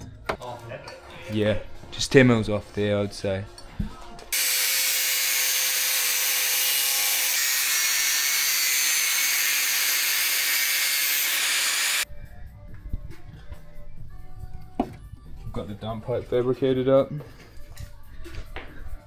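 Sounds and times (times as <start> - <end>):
angle grinder cutting metal: 4.3 - 12.0.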